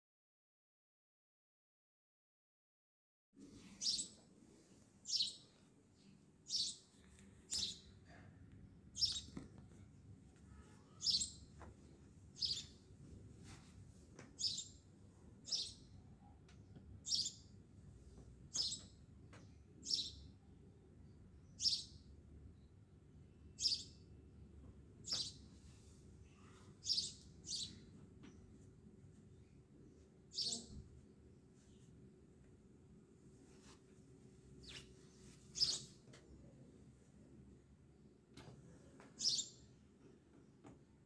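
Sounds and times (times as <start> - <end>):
bird chirping: 3.8 - 4.2, 5.0 - 6.9, 7.5 - 8.0, 9.0 - 9.4, 10.5 - 11.5, 12.4 - 12.8, 14.4 - 14.8, 15.4 - 16.0, 17.0 - 17.5, 18.5 - 20.4, 21.4 - 22.0, 23.5 - 24.0, 25.0 - 25.4, 26.4 - 28.5, 30.3 - 30.8, 34.6 - 34.9, 35.5 - 36.0, 39.2 - 39.7.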